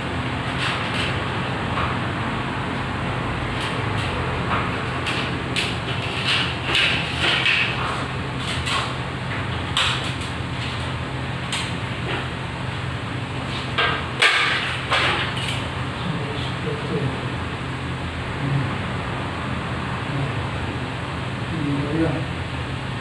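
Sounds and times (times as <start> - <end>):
steady low hum: 0.0 - 23.0
tools and parts clattering: 13.6 - 15.7.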